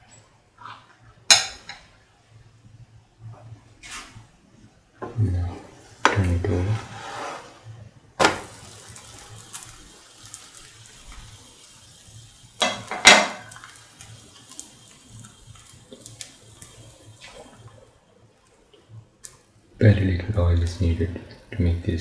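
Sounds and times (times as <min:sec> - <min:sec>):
pancake sizzling on pan: 0:05.0 - 0:22.0
crackling ticks: 0:13.5 - 0:16.9.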